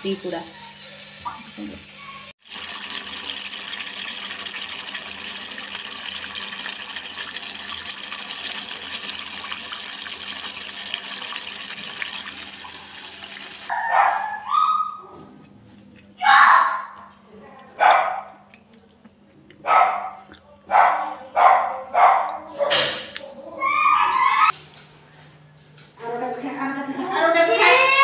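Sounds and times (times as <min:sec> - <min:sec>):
curry boiling in a pot: 0:02.4 - 0:13.7
dog yelping: 0:13.7 - 0:15.2, 0:16.2 - 0:17.0, 0:23.6 - 0:24.5.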